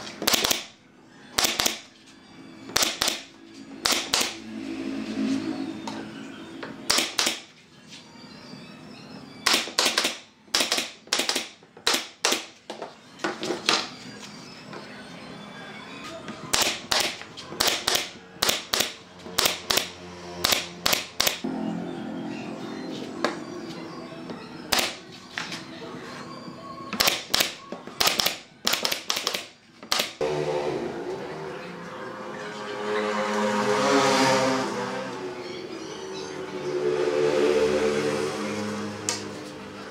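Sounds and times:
pneumatic nail gun firing: 0.2s - 0.7s, 1.4s - 1.9s, 2.7s - 4.4s, 6.9s - 7.5s, 9.4s - 12.5s, 16.5s - 21.4s, 27.0s - 30.2s.

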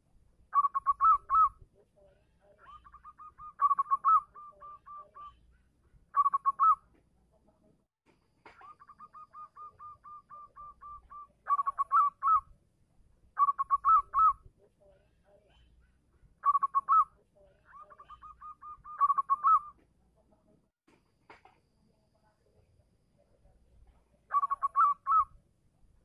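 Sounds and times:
dove cooing: 0.6s - 1.6s, 2.6s - 5.4s, 6.2s - 6.8s, 8.5s - 12.4s, 13.4s - 14.4s, 16.4s - 17.1s, 17.7s - 19.7s, 24.3s - 25.3s.

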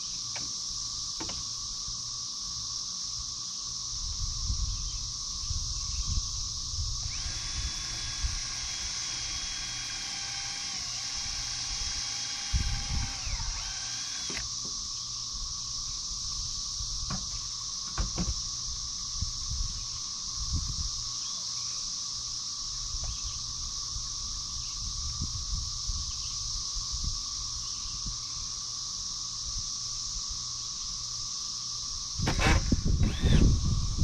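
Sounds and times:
high insect buzz: 0.0s - 34.0s
cordless drill motor whine: 6.8s - 14.6s, 32.2s - 34.0s.

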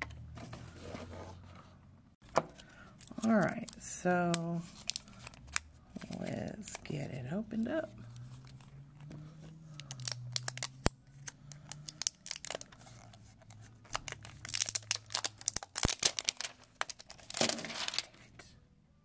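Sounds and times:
plastic film crackling: 3.0s - 7.0s, 9.7s - 18.3s.

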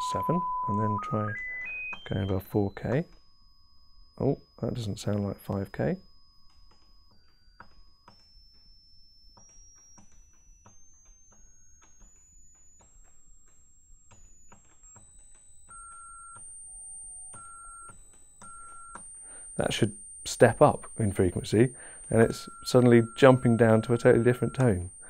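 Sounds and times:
high sine tone stepping up: 0.0s - 25.0s
weaker lower tones: 0.0s - 25.0s
small clicks: 5.0s - 25.0s.

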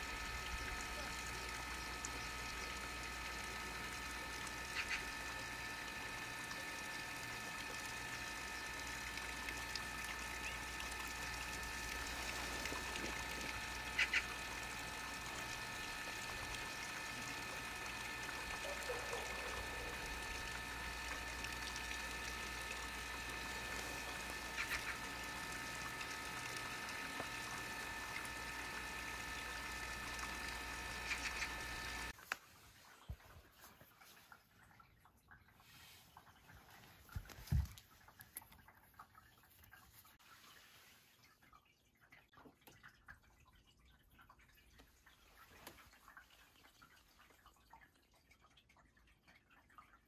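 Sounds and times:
steady background hum: 0.0s - 32.2s.

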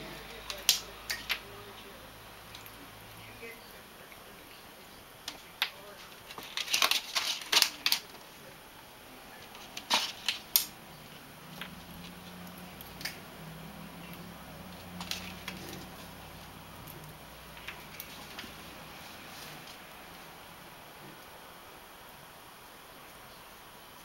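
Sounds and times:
dry plant stems crackling: 0.0s - 22.3s
low steady hum: 0.0s - 24.0s.

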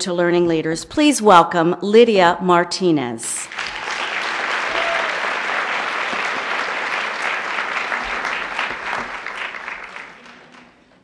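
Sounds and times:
audience applauding: 3.5s - 10.9s.

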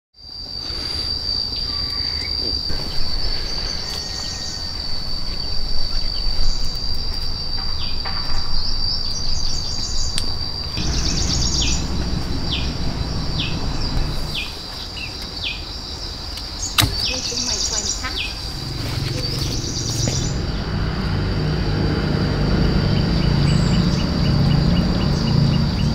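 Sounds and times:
high-pitched insect drone: 0.2s - 25.9s.

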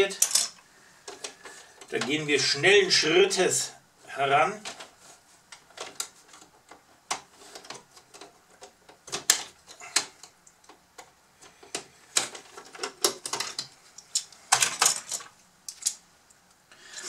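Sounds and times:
plastic parts clicking and snapping: 5.5s - 16.6s.

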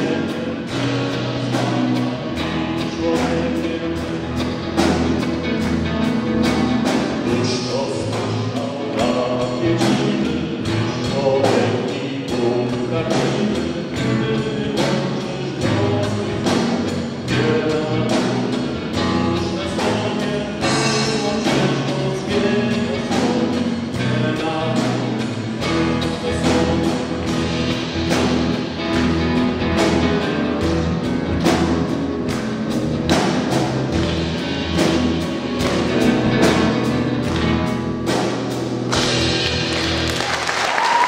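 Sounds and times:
drum kit steady beat: 0.0s - 41.0s
applause: 39.4s - 41.0s.

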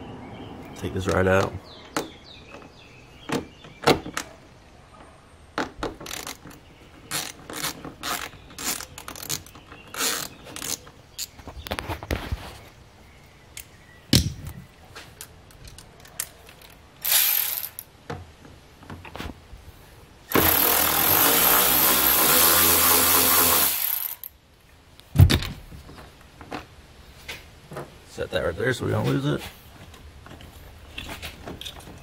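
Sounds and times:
handling clicks and knocks: 1.1s - 4.4s, 5.0s - 12.2s, 13.5s - 16.9s, 29.8s - 32.0s
cordless drill running: 20.3s - 24.3s.

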